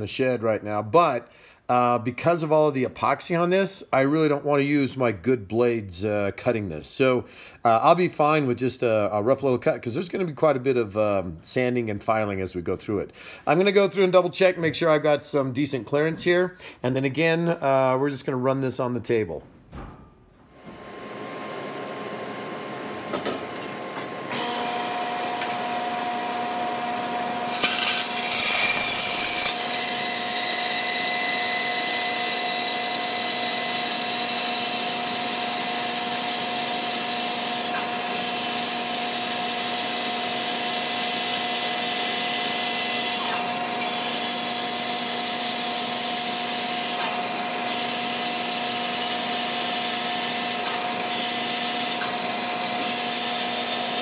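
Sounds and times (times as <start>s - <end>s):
bandsaw cutting wood: 24.3s - 54.0s
bandsaw humming: 24.4s - 54.0s.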